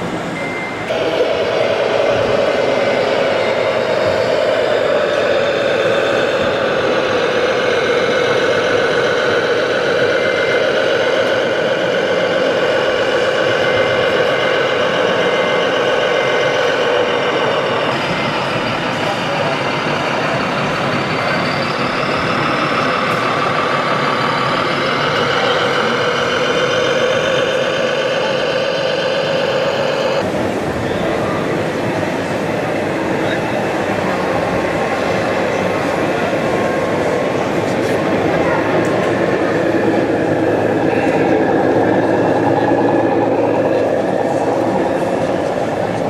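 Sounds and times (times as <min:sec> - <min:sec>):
diesel truck engine running: 0:00.0 - 0:46.0
faint short beeps: 0:00.4 - 0:00.9.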